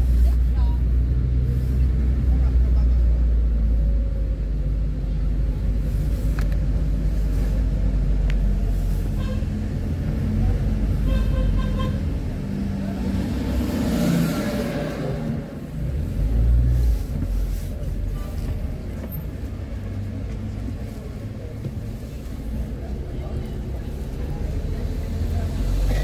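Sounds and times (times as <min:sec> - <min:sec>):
car engine and road rumble: 0:00.0 - 0:26.0
vehicle horn toot: 0:11.0 - 0:12.0.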